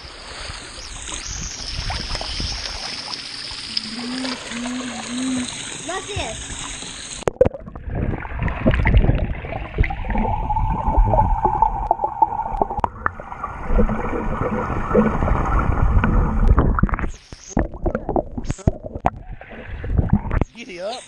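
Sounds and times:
water splashing: 0.0 - 20.9
muffled underwater rumble: 7.2 - 20.5.

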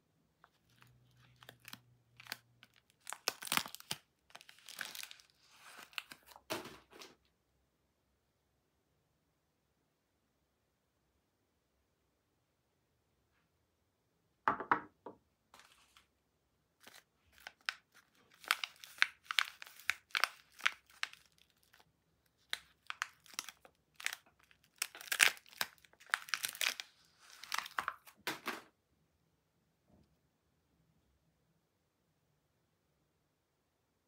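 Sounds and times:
paper wrapper tearing: 0.5 - 6.5, 16.8 - 28.6
soap bar set down knock: 14.5 - 15.2.

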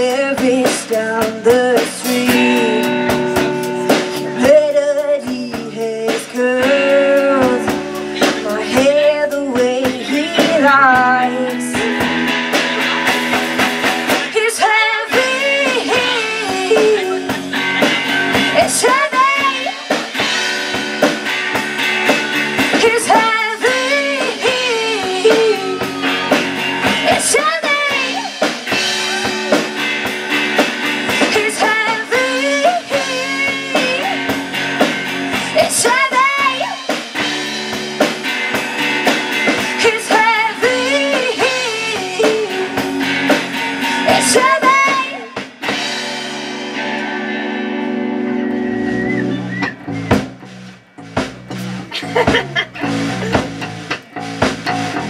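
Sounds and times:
person singing: 0.0 - 13.4, 14.2 - 20.4, 22.6 - 29.9, 31.1 - 34.4, 35.3 - 37.1, 38.5 - 45.5
rock band playing: 0.0 - 55.0.

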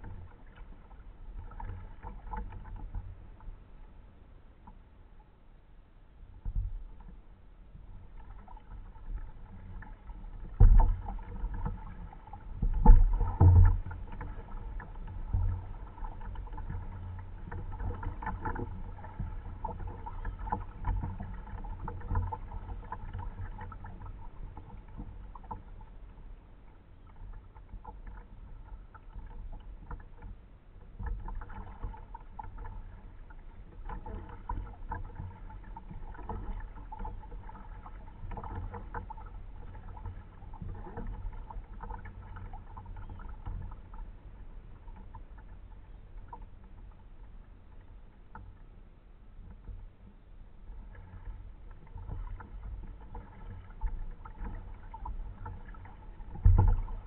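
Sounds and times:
paddle splashes: 0.0 - 5.0, 6.3 - 57.0
water lapping against hull: 0.0 - 57.0.

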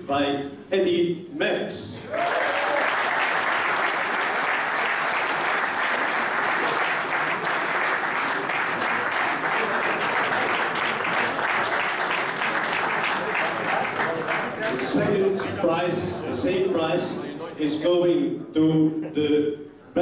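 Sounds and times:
audience applauding: 2.1 - 14.9.

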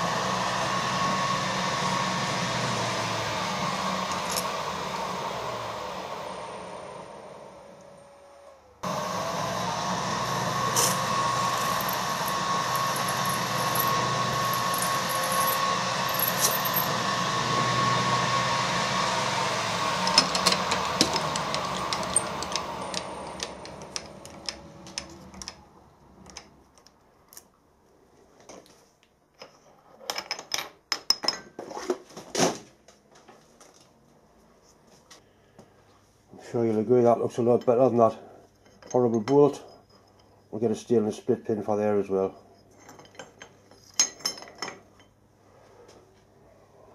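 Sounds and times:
milling machine spindle drilling: 0.0 - 8.0, 8.8 - 25.6.

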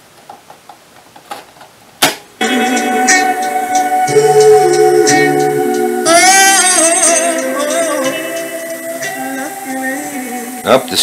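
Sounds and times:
music from speakers: 2.4 - 10.7.

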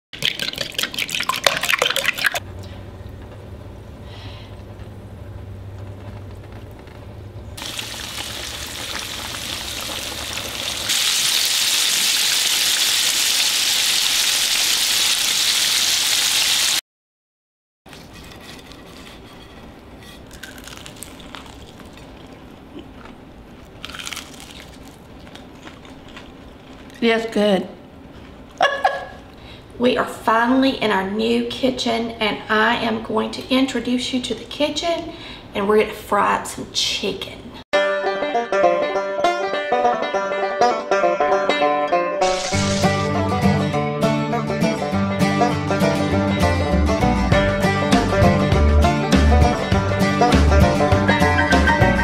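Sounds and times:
chicken deep-frying sizzle: 7.6 - 16.8, 42.2 - 43.1
fork beating eggs in glass bowl: 17.9 - 20.3.

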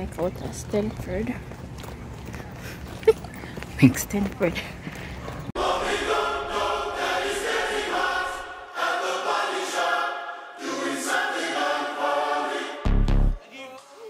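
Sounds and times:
choir singing sustained chords: 5.5 - 13.4.

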